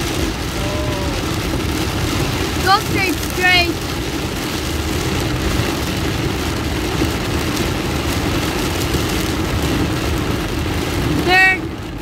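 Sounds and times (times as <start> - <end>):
car engine: 0.0 - 12.0
heavy rain on car roof: 0.0 - 12.0
wet tyre road noise: 0.0 - 12.0.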